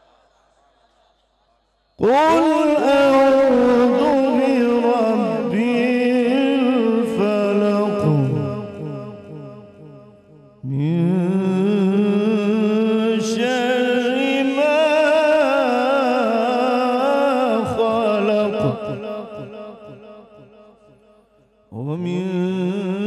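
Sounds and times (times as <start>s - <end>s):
man reciting melismatic chant: 1.9s - 21.1s, 21.7s - 23.0s.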